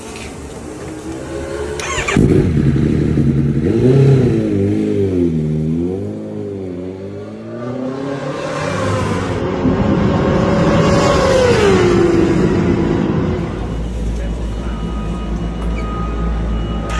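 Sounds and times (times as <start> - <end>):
motorcycle engine running: 1.8 - 6.6.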